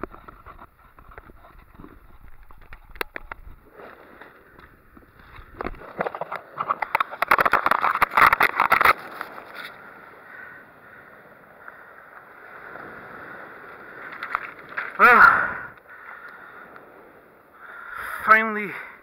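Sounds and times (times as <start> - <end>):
camera handling clicks and rustles: 0.0 - 9.8.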